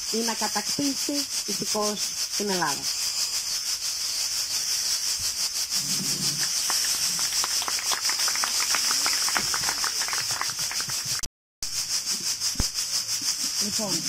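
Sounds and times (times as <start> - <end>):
cicadas shrilling: 0.0 - 14.0
people clapping: 6.4 - 11.3.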